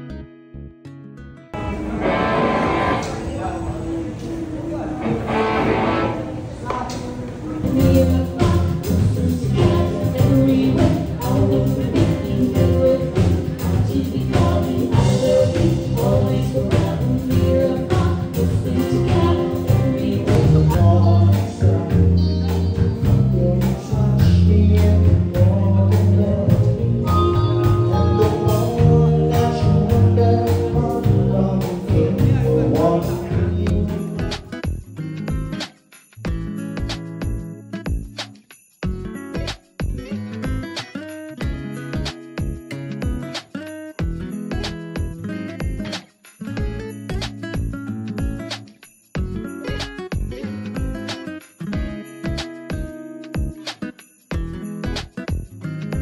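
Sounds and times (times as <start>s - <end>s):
guitar: 0.0s - 56.0s
electric bass line: 1.6s - 3.3s, 7.6s - 35.5s
person singing: 5.0s - 34.6s
drum kit: 7.6s - 56.0s.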